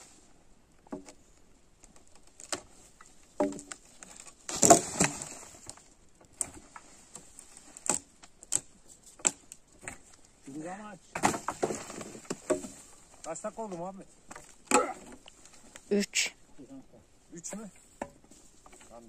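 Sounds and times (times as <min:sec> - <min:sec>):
knocks and clatters of demolition: 0:03.4 - 0:05.8, 0:09.2 - 0:13.4.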